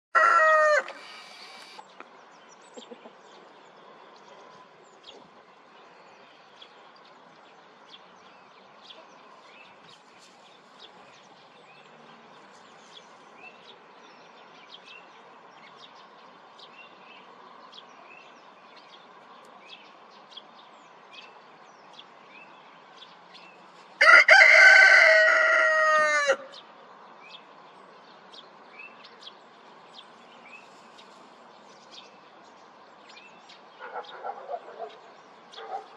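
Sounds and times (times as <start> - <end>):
rooster crowing: 0.1 - 1.6, 24.0 - 26.5.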